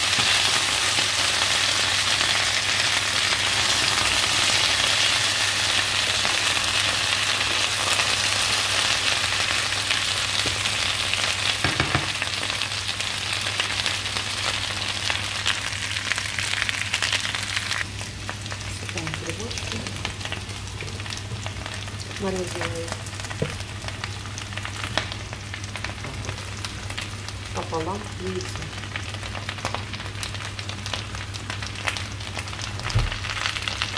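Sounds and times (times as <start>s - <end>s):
potatoes sizzling in oil: 0.0s - 33.9s
spatula knock on pan: 11.6s - 12.1s.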